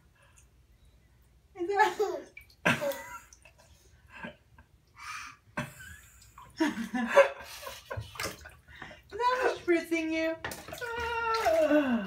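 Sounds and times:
bathwater splashing: 1.8 - 4.0, 5.6 - 12.0.

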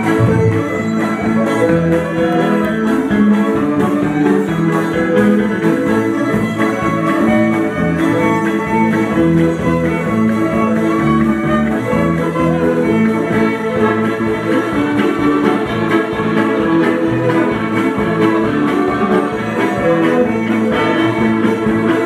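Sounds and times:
acoustic guitar accompaniment: 0.0 - 22.0
fiddles playing a folk tune: 0.0 - 22.0.

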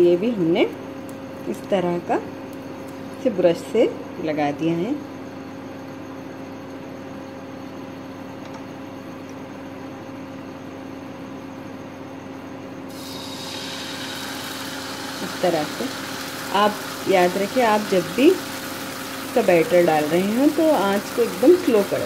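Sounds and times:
electric hum: 0.0 - 22.0
batter sizzling on pan: 12.9 - 22.0.

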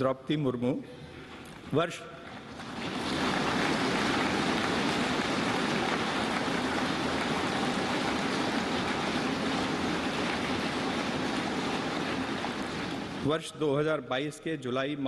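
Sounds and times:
large crowd applauding: 2.4 - 13.3.

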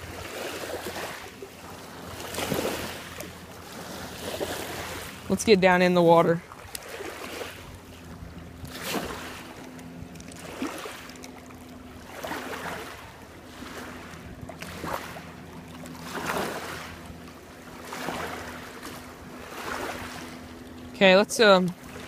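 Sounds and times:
small waves lapping: 0.0 - 22.0.

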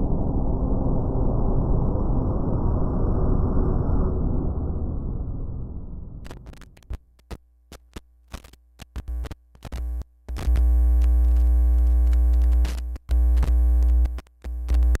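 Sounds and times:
glitchy clicks and crackles: 6.2 - 15.0.

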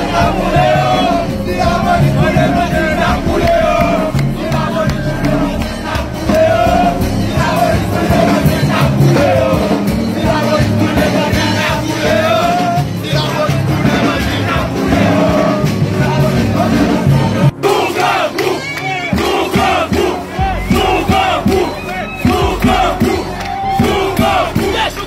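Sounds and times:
crowd singing and shouting: 0.0 - 25.0
music: 0.0 - 25.0.

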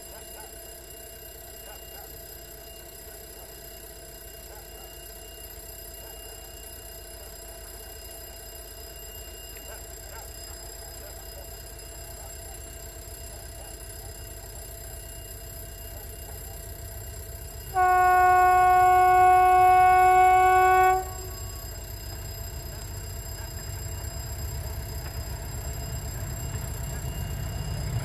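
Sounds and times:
distant diesel train rumble: 9.6 - 28.0
loud train horn: 17.7 - 21.9.

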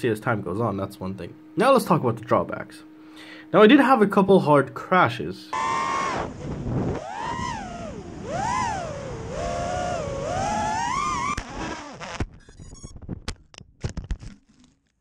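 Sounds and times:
drone motors whining: 5.5 - 12.9.

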